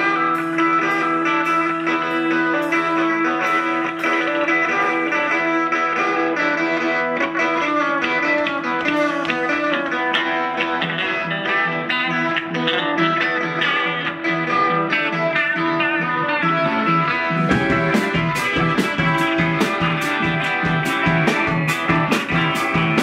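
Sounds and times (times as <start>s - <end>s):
drums steady beat: 0.0s - 5.8s, 16.6s - 23.0s
keyboard: 0.0s - 7.3s, 16.0s - 23.0s
electric guitars: 0.0s - 23.0s
repeating bass line: 16.5s - 23.0s.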